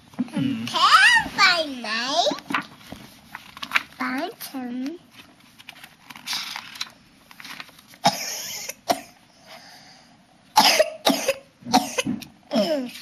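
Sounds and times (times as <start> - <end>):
person coughing: 8.0 - 9.2, 10.6 - 12.9.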